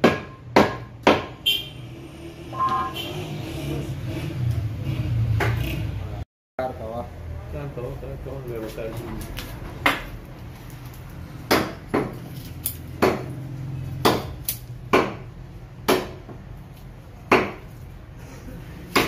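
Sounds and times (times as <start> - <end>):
blade striking wooden chopping block: 13.0 - 13.4, 17.3 - 17.7.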